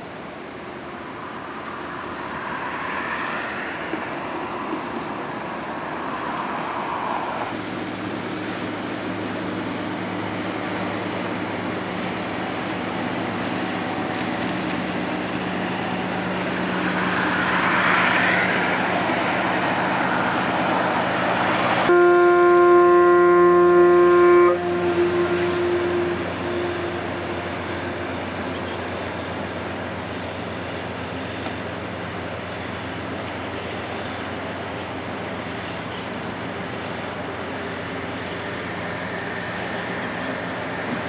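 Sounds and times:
ship engine hum and rumble: 0:00.0 - 0:41.0
ship's whistle blast: 0:21.9 - 0:27.3.

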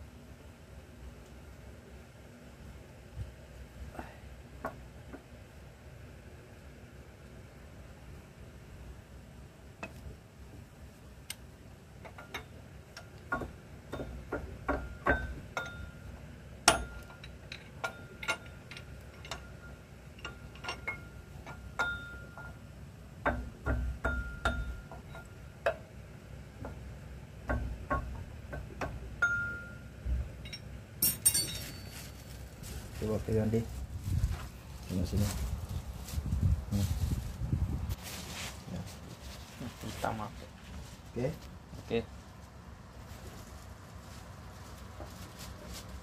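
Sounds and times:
steel tool clinking on metal gears: 0:30.4 - 0:32.1.

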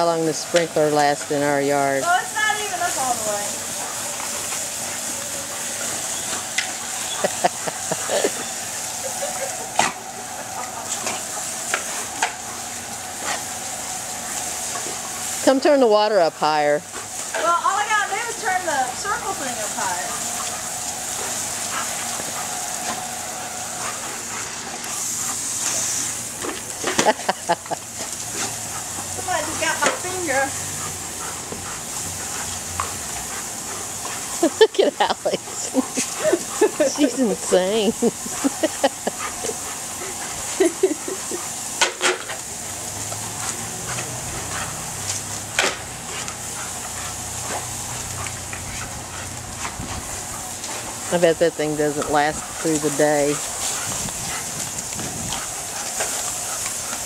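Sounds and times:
sprinkler spraying water: 0:00.0 - 0:57.0
dogs yipping: 0:02.1 - 0:12.7.

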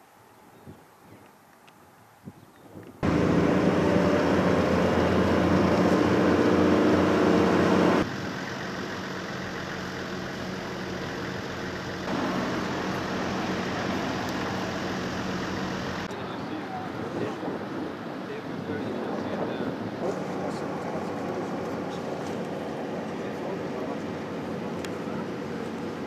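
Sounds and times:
car engine hum and road noise: 0:03.0 - 0:26.0.

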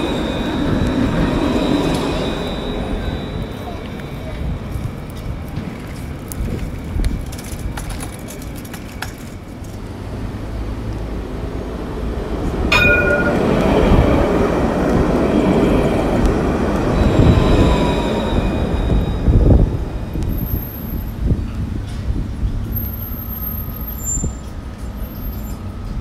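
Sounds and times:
street noise: 0:00.0 - 0:26.0
bus rumbling and hissing: 0:09.4 - 0:12.7, 0:13.4 - 0:26.0
sharp squeak with ringing tone: 0:22.8 - 0:24.6.

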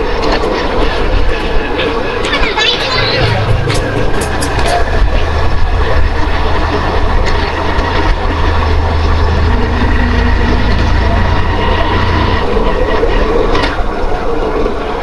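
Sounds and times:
road traffic: 0:00.0 - 0:14.8
wind rumble on microphone: 0:00.0 - 0:15.0.

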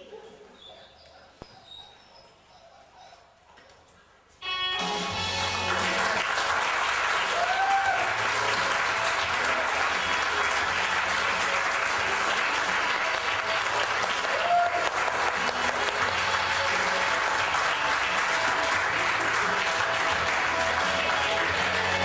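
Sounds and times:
audience applauding: 0:04.9 - 0:22.0
crowd calling out: 0:07.2 - 0:12.2, 0:12.9 - 0:22.0.

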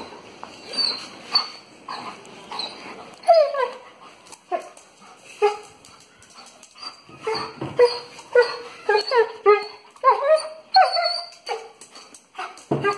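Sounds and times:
dog whining: 0:00.0 - 0:03.9, 0:06.6 - 0:12.9.

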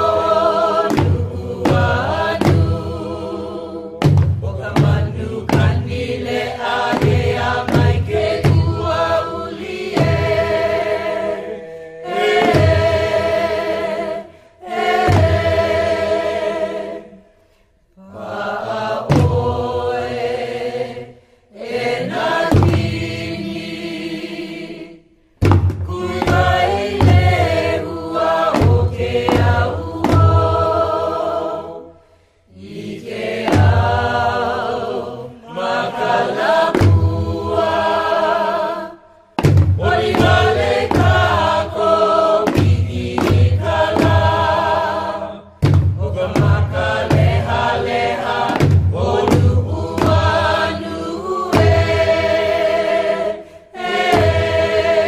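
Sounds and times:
sharp percussive strikes: 0:00.0 - 0:03.2, 0:04.0 - 0:11.2, 0:12.0 - 0:13.8, 0:14.8 - 0:16.6, 0:22.0 - 0:23.4, 0:25.4 - 0:31.4, 0:33.2 - 0:34.7, 0:36.1 - 0:37.8, 0:39.4 - 0:52.6, 0:53.8 - 0:55.0
group chanting in unison: 0:00.0 - 0:55.0.

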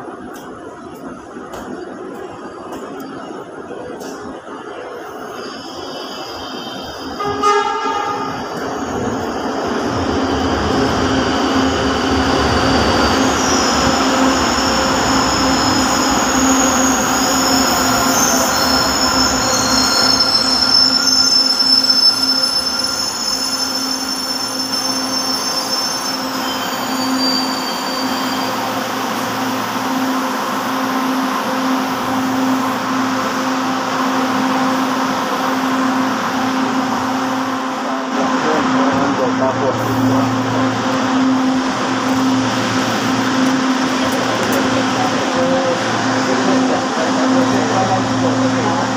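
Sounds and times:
low hum from train: 0:00.0 - 0:48.9
metro train braking: 0:00.0 - 0:48.9
wheels and brakes squealing: 0:15.2 - 0:28.9.

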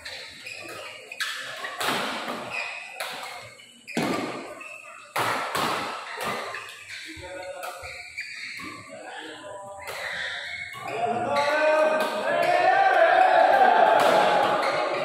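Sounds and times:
racket hitting shuttlecock: 0:01.6 - 0:04.4, 0:05.1 - 0:06.6, 0:11.8 - 0:15.0.

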